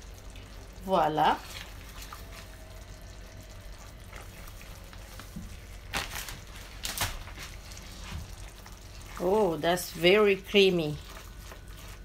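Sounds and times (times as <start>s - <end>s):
low steady hum: 0.0s - 12.0s
spatula stirring sauce in pan: 1.4s - 5.8s, 7.6s - 12.0s.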